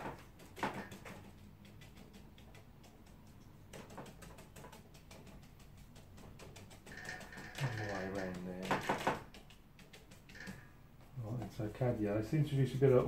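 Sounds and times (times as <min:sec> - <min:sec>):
brush tapping on paper: 0:00.0 - 0:12.1.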